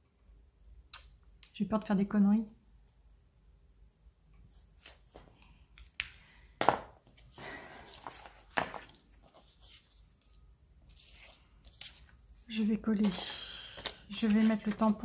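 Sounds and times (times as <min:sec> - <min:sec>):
paper rustling and sliding: 0:07.2 - 0:10.3, 0:10.9 - 0:12.2, 0:13.0 - 0:15.0.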